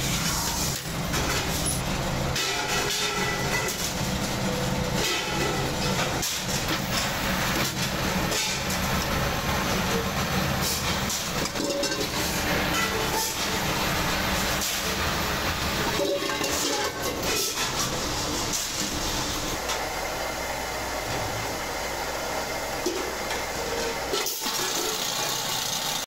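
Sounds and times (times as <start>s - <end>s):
metallic knocks and clatter: 10.6s - 13.4s.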